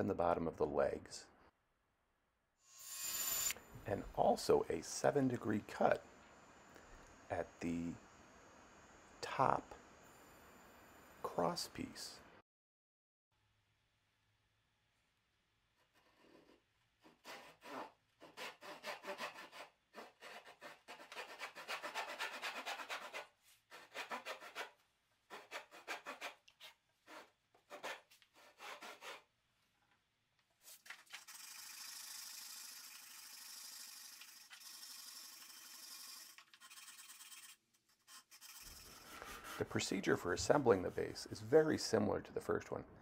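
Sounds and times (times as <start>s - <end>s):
continuous scraping hiss: 4.2s - 12.1s, 30.6s - 42.0s
hand saw rasping through wood: 15.8s - 29.3s.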